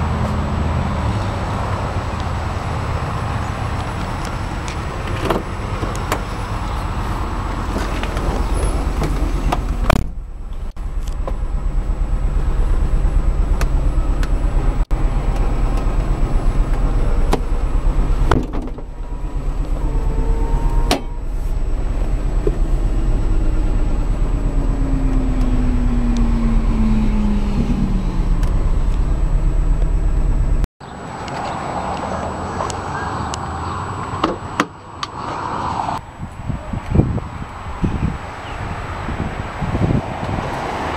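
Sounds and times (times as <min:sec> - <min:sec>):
car engine idling: 0:00.0 - 0:30.7.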